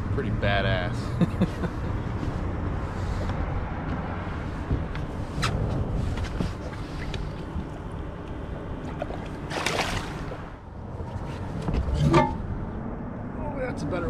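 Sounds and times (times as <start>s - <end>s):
low rumble of wind and water: 0.0s - 14.0s
fish splashing at water surface: 8.9s - 10.6s.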